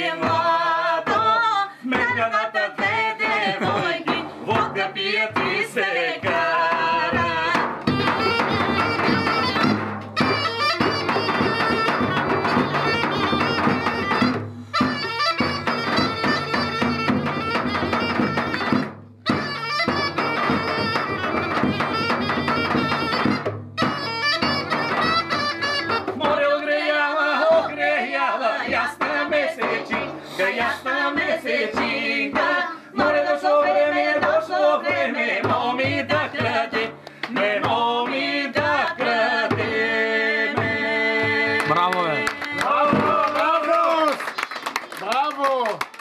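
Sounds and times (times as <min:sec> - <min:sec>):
bagpipe playing a folk tune: 0:07.9 - 0:26.2
low bagpipe drone: 0:19.4 - 0:26.1.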